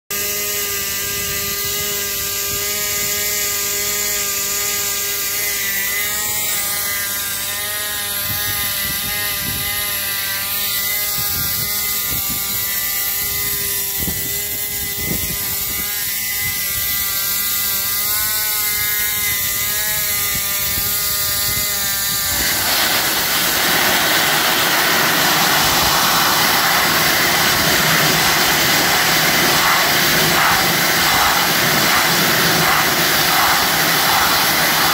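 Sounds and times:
machine whine: 0:19.4 - 0:34.9
abrasive blasting hiss: 0:22.2 - 0:34.9.

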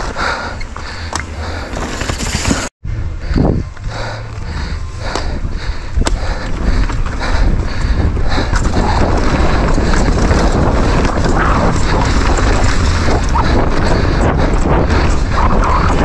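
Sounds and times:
bike rattling over rocky trail: 0:00.8 - 0:02.7, 0:06.0 - 0:16.0
wind buffeting microphone: 0:03.0 - 0:16.0.

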